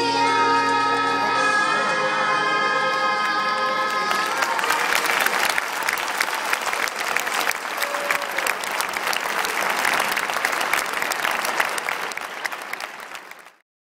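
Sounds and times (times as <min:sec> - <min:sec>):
audience applauding: 0:02.8 - 0:13.6.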